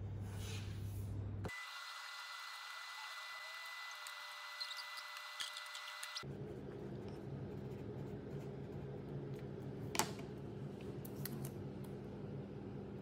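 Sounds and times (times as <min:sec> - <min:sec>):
room hum: 0:00.0 - 0:13.0.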